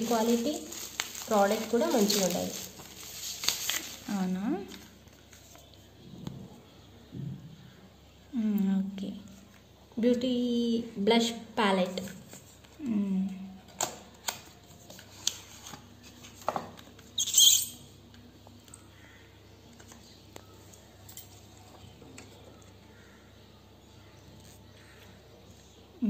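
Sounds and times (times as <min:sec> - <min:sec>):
packaging rustle: 0:00.0 - 0:05.6.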